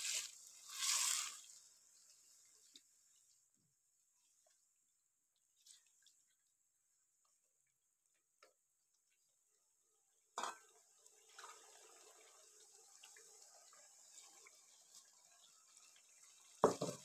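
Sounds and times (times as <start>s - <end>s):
water pouring into pot: 0.0s - 2.5s, 10.4s - 17.0s.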